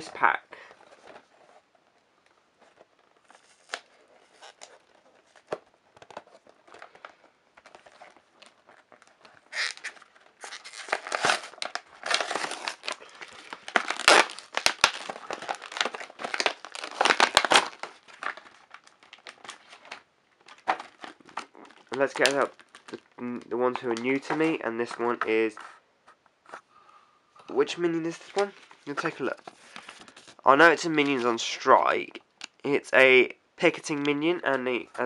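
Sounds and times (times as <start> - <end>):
packaging crinkling and tearing: 2.6 - 25.0.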